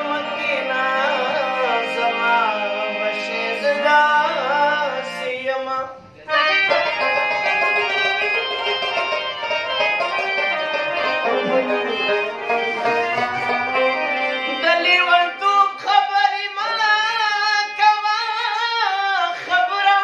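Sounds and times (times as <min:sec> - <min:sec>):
man singing: 0:00.0 - 0:06.5, 0:11.3 - 0:12.5, 0:14.5 - 0:20.0
sustained instrumental accompaniment: 0:06.2 - 0:18.5.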